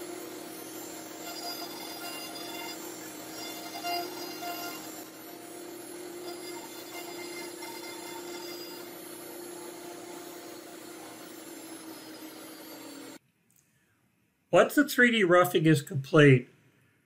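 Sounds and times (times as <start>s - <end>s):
machine noise: 0.0s - 13.2s
router spindle whine: 0.0s - 13.2s.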